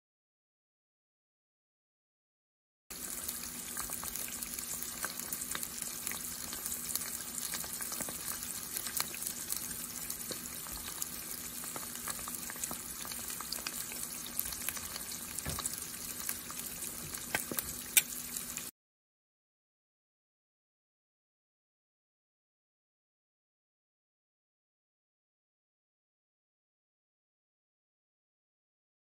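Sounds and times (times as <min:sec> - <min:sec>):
eggs sizzling in hot oil: 0:02.9 - 0:18.7.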